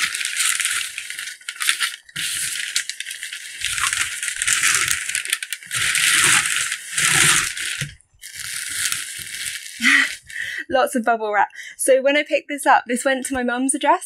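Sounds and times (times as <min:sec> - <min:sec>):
bubble wrap crinkling: 0:00.0 - 0:10.6
packing paper rustling and crumpling: 0:00.0 - 0:10.6.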